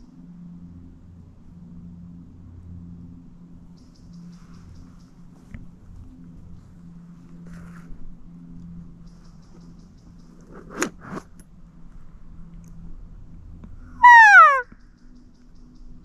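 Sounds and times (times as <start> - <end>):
elk call falling in pitch: 14.0 - 14.7.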